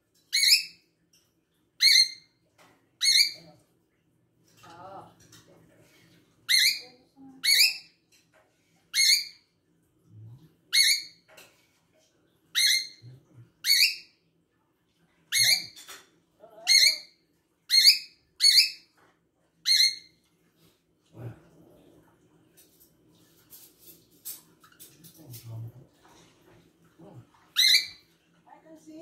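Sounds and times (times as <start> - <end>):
cockatiel calls: 27.6 - 28.0.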